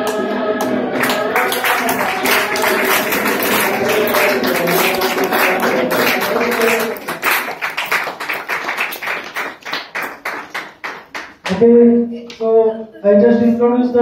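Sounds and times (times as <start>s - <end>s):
group singing: 0.0s - 7.8s
people clapping: 0.0s - 11.6s.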